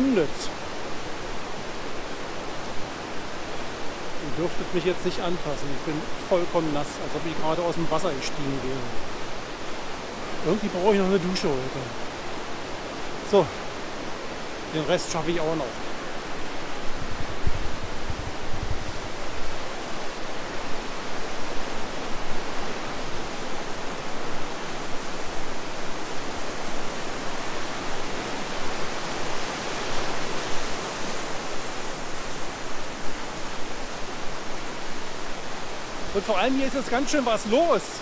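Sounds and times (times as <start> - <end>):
river water rushing: 0.0 - 38.0.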